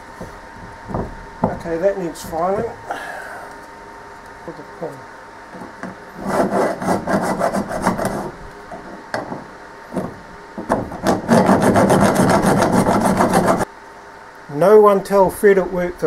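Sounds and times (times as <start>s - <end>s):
file rasping on metal: 6.2s - 8.4s, 11.0s - 13.6s.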